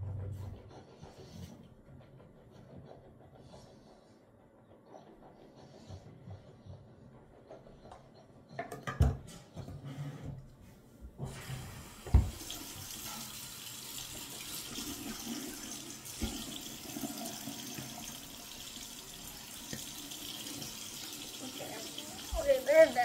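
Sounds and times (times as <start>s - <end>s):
tap water running into basin: 11.2s - 23.0s.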